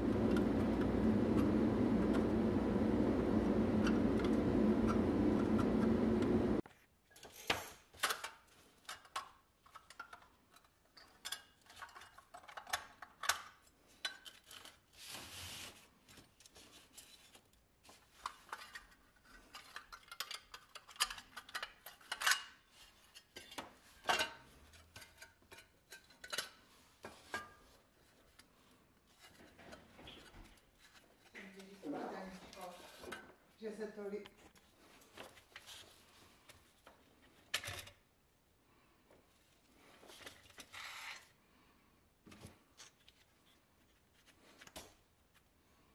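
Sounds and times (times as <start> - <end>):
small power tool running: 0.0 - 6.6.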